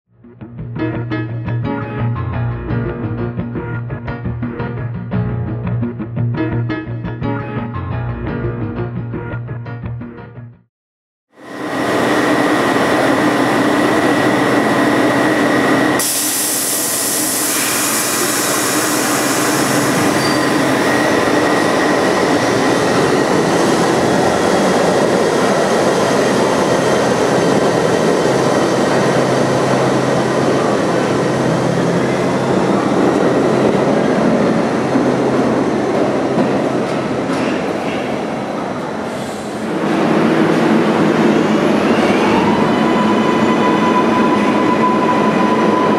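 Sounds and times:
subway train running: 0:11.4 - 0:45.9
sharp high hiss: 0:16.0 - 0:19.7.

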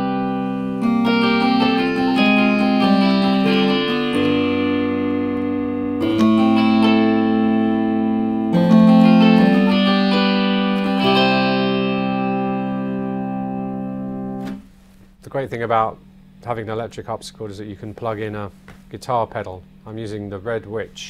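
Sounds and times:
harpsichord single notes: 0:00.0 - 0:14.5
electric harpsichord chords: 0:00.0 - 0:14.6.

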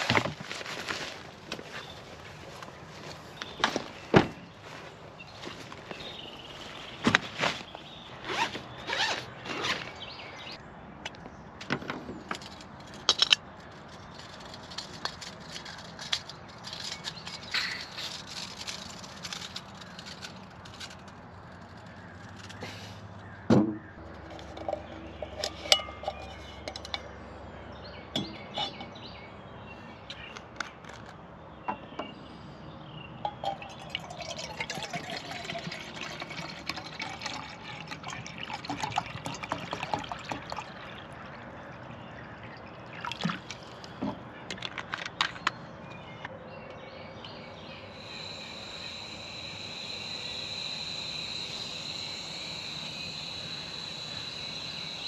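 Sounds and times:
water poured into metal pot: 0:33.4 - 0:43.6
stove burner hissing: 0:48.0 - 0:55.0.

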